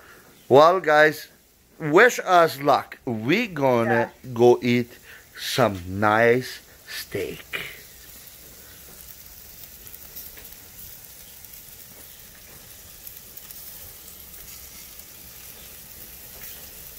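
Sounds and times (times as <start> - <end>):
steaks sizzling on a grill: 0.0 - 16.9
small crackles: 4.8 - 16.9.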